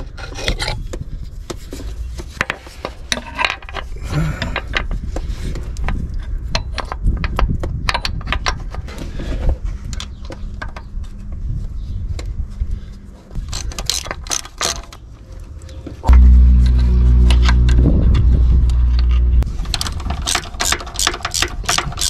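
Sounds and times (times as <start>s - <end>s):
loud low hum: 16.0s - 19.7s.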